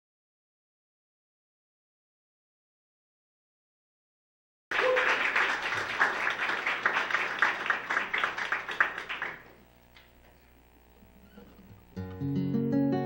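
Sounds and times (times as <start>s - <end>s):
audience applauding: 4.7s - 9.6s.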